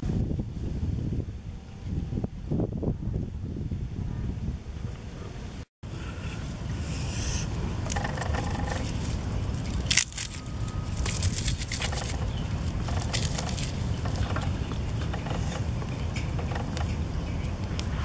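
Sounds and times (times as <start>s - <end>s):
wind rumble on microphone: 0.0s - 18.0s
plant stalks rustling and crackling: 7.5s - 17.9s
stalk cracking sharply: 9.6s - 14.3s.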